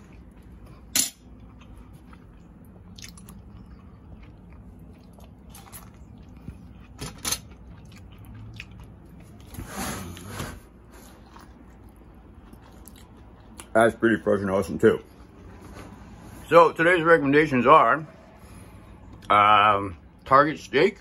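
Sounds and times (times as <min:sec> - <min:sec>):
chewing corn on the cob: 0:00.0 - 0:09.6, 0:11.0 - 0:13.8.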